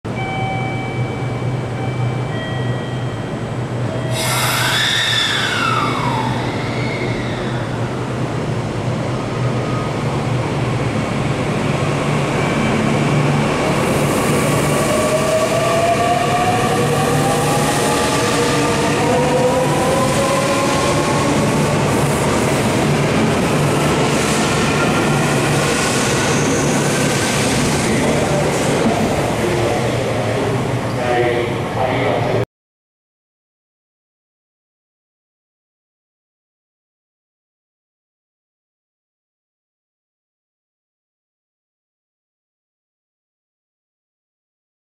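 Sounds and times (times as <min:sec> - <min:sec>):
electric train inverter whine: 0:00.1 - 0:29.0.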